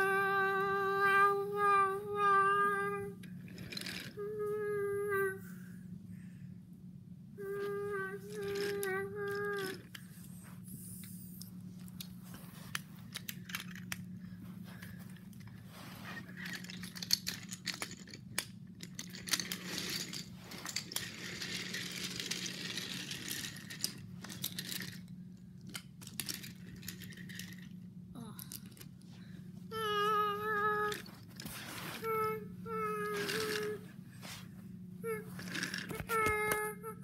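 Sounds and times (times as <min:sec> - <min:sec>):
steady low hum: 0:00.0 - 0:37.0
wooden toy trains clicking: 0:03.3 - 0:04.2, 0:07.6 - 0:10.0, 0:12.7 - 0:14.0, 0:16.2 - 0:28.9, 0:29.8 - 0:33.8, 0:35.1 - 0:36.7
rustling: 0:30.5 - 0:36.3.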